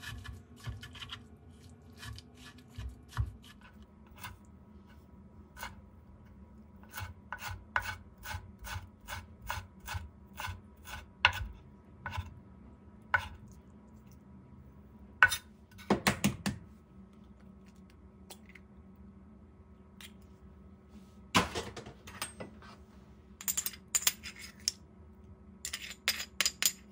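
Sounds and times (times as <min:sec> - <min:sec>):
knife chopping on cutting board: 0:02.0 - 0:03.7, 0:06.8 - 0:12.3.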